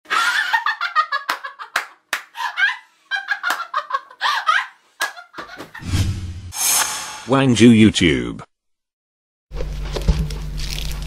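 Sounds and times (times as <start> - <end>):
woman laughing loudly: 0.1 - 5.8
sharp hand claps: 1.3 - 2.3.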